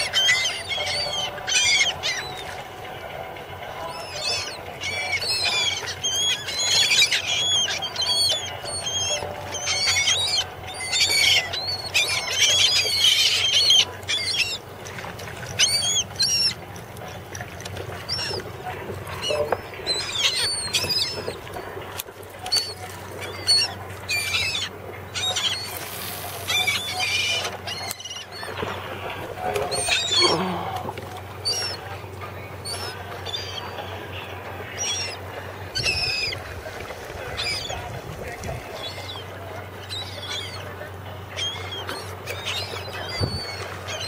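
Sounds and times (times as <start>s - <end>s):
gulls calling: 0.0s - 44.0s.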